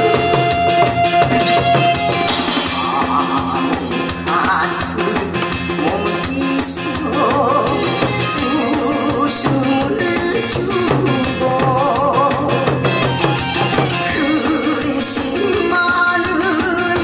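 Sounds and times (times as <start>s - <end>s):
upbeat backing music: 0.0s - 17.0s.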